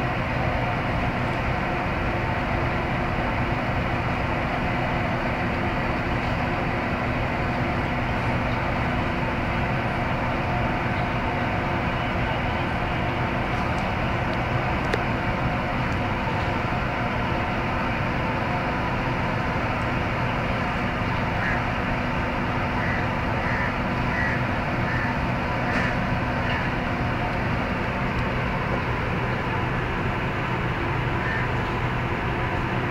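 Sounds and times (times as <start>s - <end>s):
mechanical hum and hiss: 18.0s - 32.9s.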